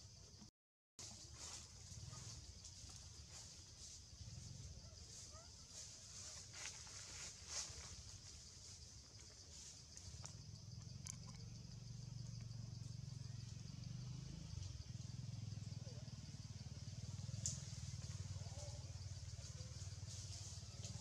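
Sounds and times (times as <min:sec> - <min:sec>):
low engine hum: 0:10.2 - 0:21.0
faint clicks: 0:17.4 - 0:18.1.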